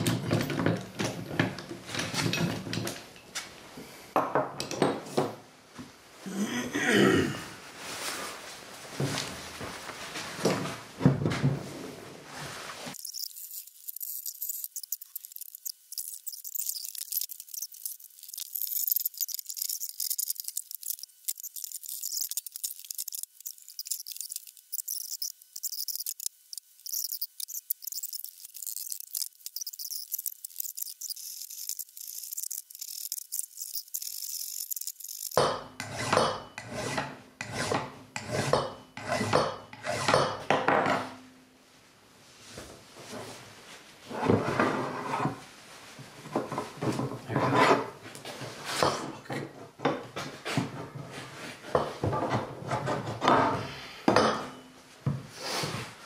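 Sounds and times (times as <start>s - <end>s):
thin high hiss: 12.7s - 35.4s, 55.3s - 56.0s
metal rubbing on metal: 13.0s - 37.7s.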